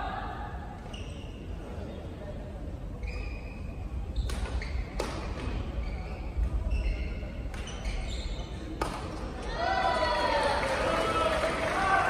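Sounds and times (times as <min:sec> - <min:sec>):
shoes squeaking on court floor: 0:00.8 - 0:02.0, 0:03.0 - 0:09.5.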